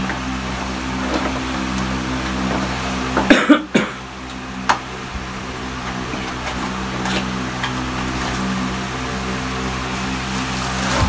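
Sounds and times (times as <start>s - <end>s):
steady electrical hum: 0.0s - 11.0s
man coughing: 3.3s - 4.1s.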